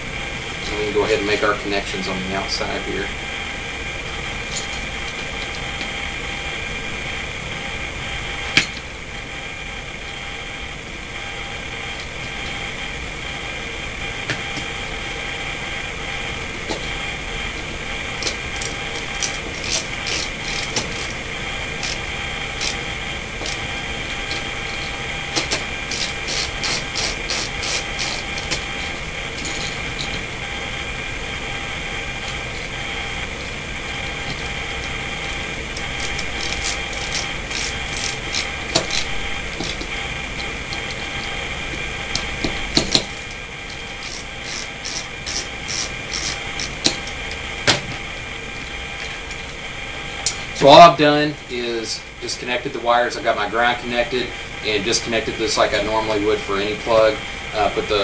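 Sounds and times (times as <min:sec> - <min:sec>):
steady background hum: 0:00.0 - 0:58.0
hand tools clicking: 0:18.2 - 0:21.2, 0:24.3 - 0:30.2, 0:35.8 - 0:41.1, 0:42.1 - 0:47.2.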